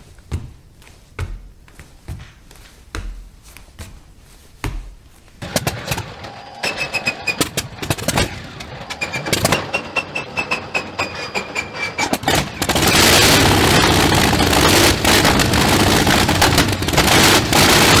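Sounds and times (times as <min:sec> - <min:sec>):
rattling engine noise: 0:05.4 - 0:18.0.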